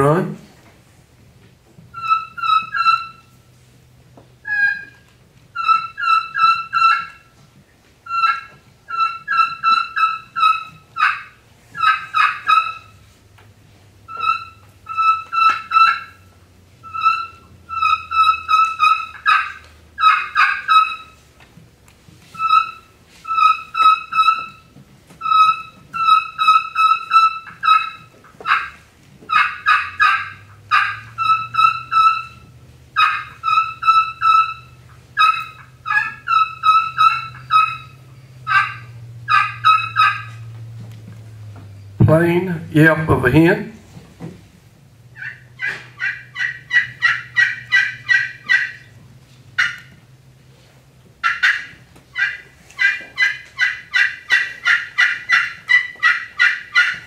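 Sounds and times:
friction turkey call whistles and yelps: 0:01.9 - 0:03.5, 0:04.4 - 0:07.4, 0:08.0 - 0:13.1, 0:14.1 - 0:21.2, 0:22.2 - 0:40.7, 0:45.1 - 0:49.0, 0:49.6 - 0:50.0, 0:51.2 - 0:57.0.

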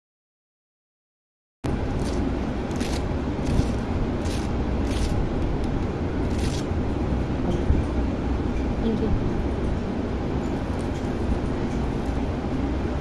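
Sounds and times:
crisp crust crackling: 0:02.0 - 0:06.7.

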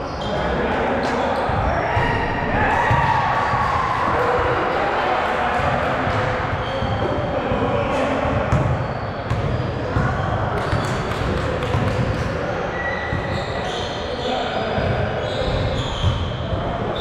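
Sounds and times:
players' voices and court noise: 0:00.0 - 0:17.0
basketball bouncing: 0:08.3 - 0:12.2.

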